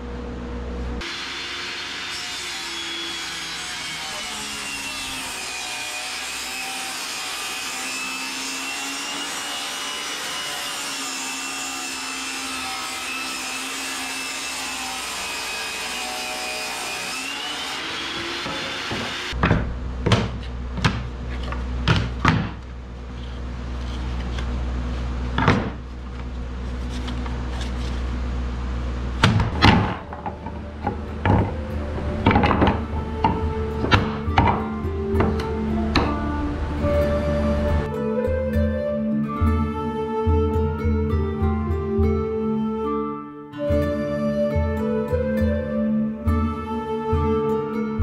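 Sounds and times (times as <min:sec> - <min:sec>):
table saw ripping board: 0:01.1 - 0:19.4, 0:29.2 - 0:34.6
steady low hum: 0:19.4 - 0:37.9
wooden knocks and clacks: 0:29.3 - 0:36.2.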